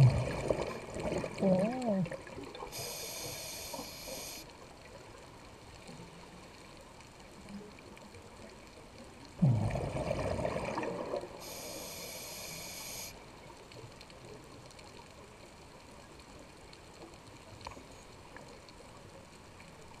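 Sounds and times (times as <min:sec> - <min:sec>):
rumbling bubbles from diver: 0:00.0 - 0:02.6, 0:09.4 - 0:11.4
faint underwater hiss: 0:00.0 - 0:20.0.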